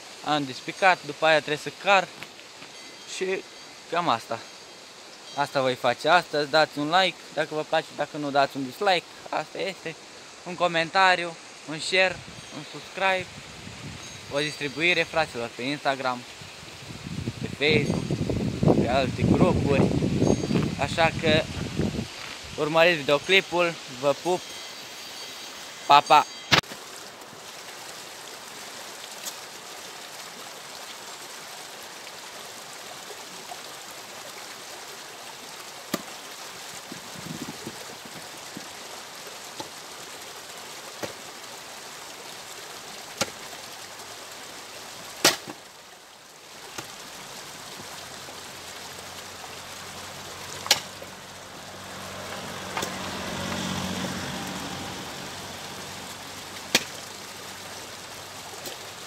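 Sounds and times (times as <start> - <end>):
axe splitting firewood: 35.9 - 36.2, 43.2 - 43.5, 45.2 - 45.6, 50.6 - 51.0, 56.7 - 57.0.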